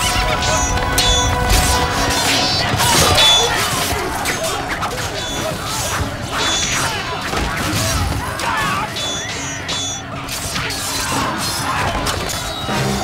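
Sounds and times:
men yelling: 0.0s - 6.2s
dramatic score music: 0.0s - 13.0s
steel blades clashing: 0.0s - 13.0s.

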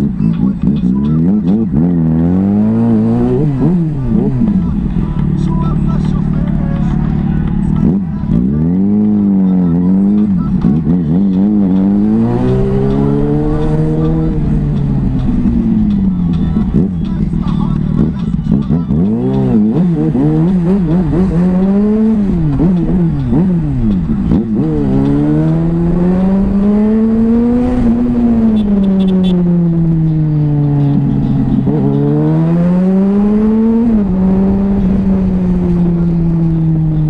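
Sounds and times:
motorcycle engine revving: 0.0s - 37.0s.

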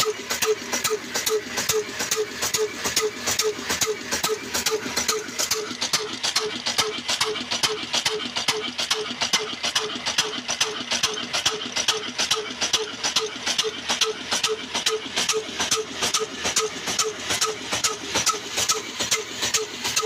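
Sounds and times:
diesel engine knocking: 0.0s - 20.0s.

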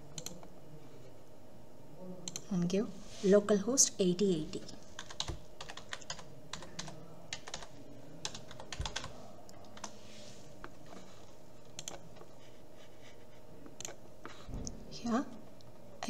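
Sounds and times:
computer keyboard typing: 0.1s - 0.5s, 2.3s - 2.5s, 4.6s - 10.0s, 11.6s - 12.3s, 13.7s - 14.4s.

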